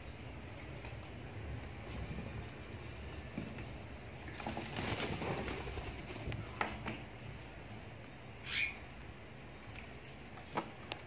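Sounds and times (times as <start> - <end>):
wings flapping: 4.3 - 6.4
bird chirp: 8.4 - 8.9.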